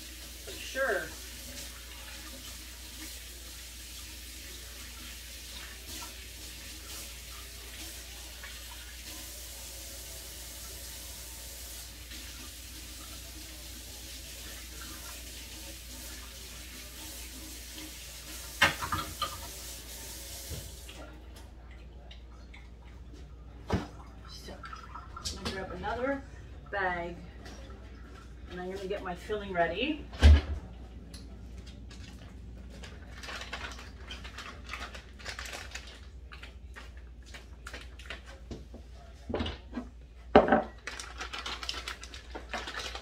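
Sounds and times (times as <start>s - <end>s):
tap water running into sink: 0.0s - 23.0s, 23.7s - 26.2s.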